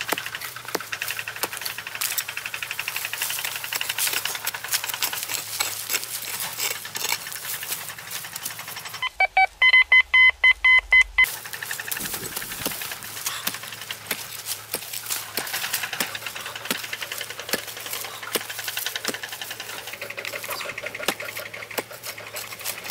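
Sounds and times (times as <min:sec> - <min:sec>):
digging tool scraping soil: 0:00.0 - 0:09.0, 0:11.3 - 0:22.9
metal detector beeps: 0:09.0 - 0:11.3.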